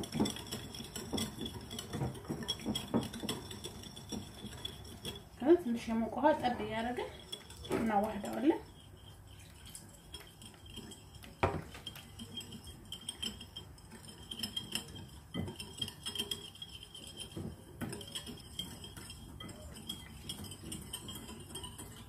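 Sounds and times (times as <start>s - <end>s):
wire whisk clinking in a bowl: 0.0s - 22.0s.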